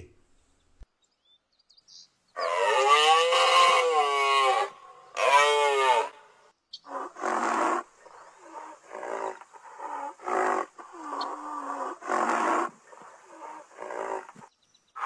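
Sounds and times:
animal grunting calls: 2.4 - 6.2, 6.8 - 15.0
large animal calling: 2.4 - 14.4.

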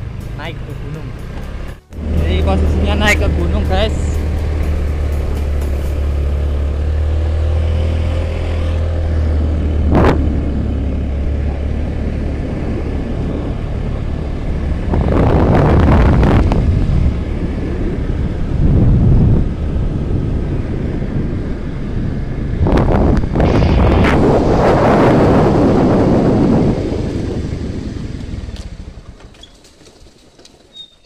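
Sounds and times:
motorcycle engine running: 0.0 - 22.2.

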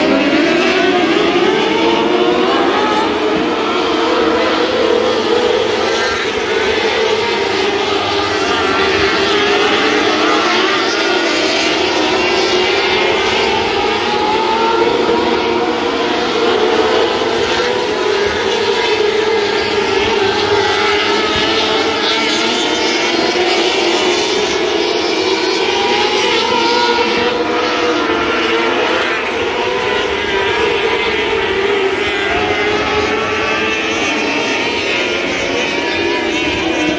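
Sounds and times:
racing car engines droning: 0.0 - 36.9.

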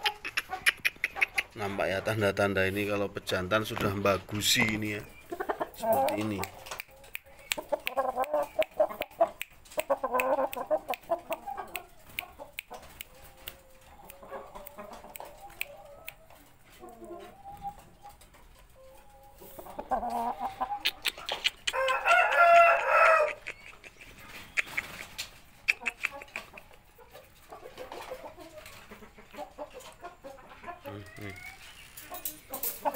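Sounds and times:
chickens clucking: 0.0 - 32.9
rooster crowing: 21.7 - 23.4.

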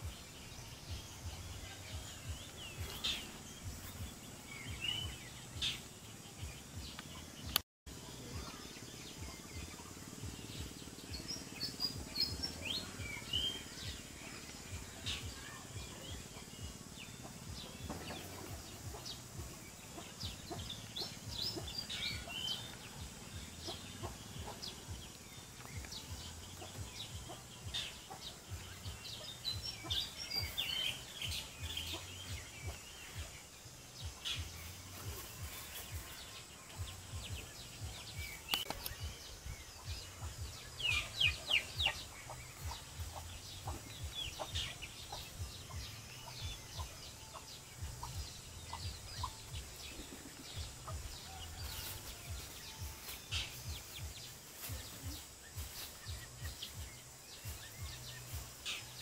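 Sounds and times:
small birds chirping: 0.0 - 59.0
chickens clucking: 15.9 - 30.9.

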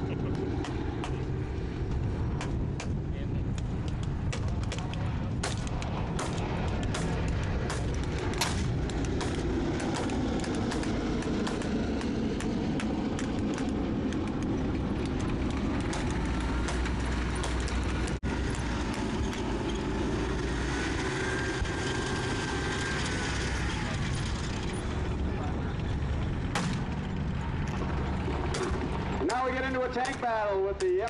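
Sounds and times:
armored vehicle engines rumbling: 0.0 - 31.0
sharp cracks: 0.6 - 1.3, 1.9 - 19.6, 26.4 - 31.0.

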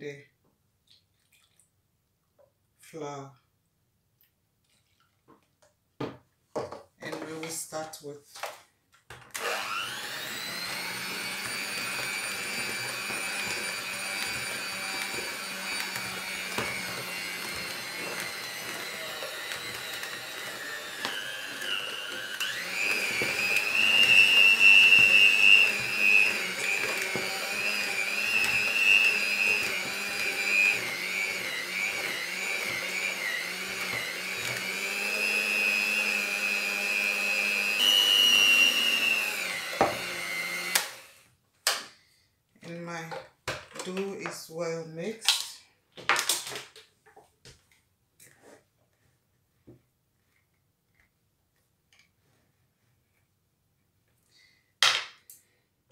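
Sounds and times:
electric hand mixer whining: 9.3 - 41.3.

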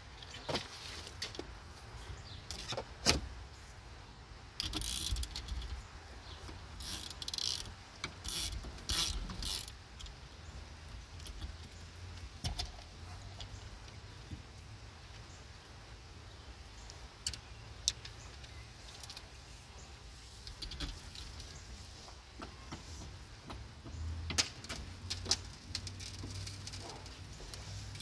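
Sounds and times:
metallic ratcheting: 4.6 - 5.7, 6.8 - 9.8.

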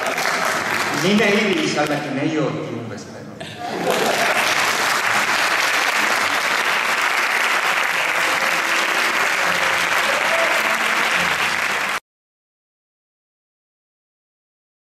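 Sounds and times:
audience applauding: 0.0 - 2.0, 3.7 - 12.0.

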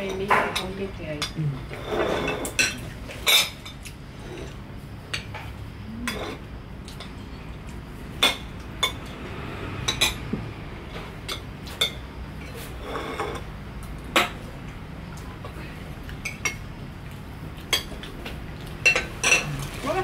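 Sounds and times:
cutlery clinking on plates: 17.6 - 19.8.

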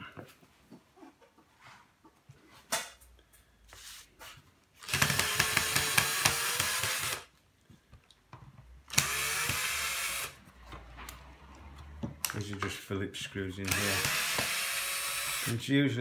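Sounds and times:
cordless drill motor clicking: 4.8 - 7.3, 8.9 - 10.4, 13.6 - 15.6.

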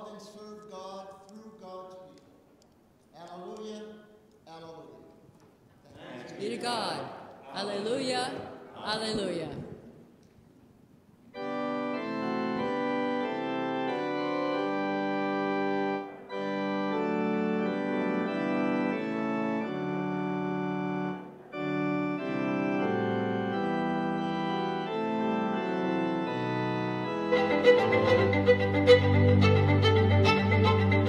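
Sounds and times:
organ playing held chords: 11.3 - 31.0.

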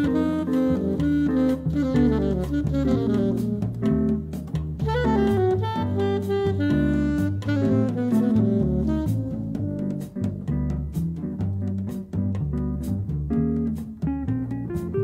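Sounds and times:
saxophone melody: 0.0 - 10.8
plucked double bass: 0.0 - 15.0.

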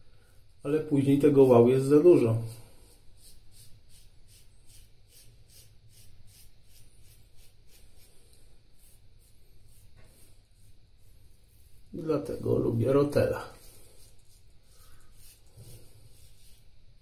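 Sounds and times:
razor scraping stubble: 1.0 - 16.8.

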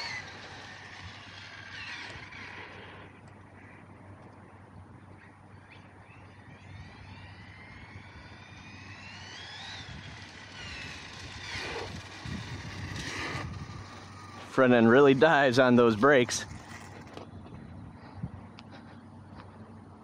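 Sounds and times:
electric toy truck motor whining: 0.0 - 3.2, 6.2 - 17.2.

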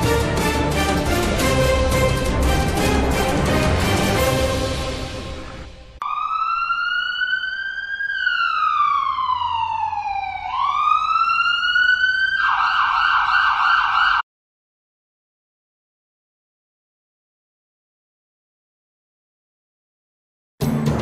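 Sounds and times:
emergency vehicle siren: 3.8 - 14.3.

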